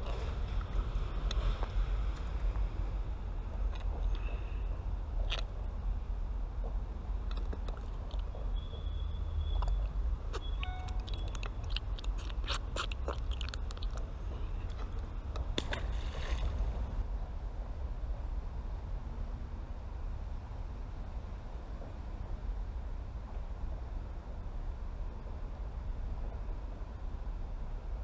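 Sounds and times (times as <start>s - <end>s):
low wind rumble on microphone: 11.4s - 28.0s.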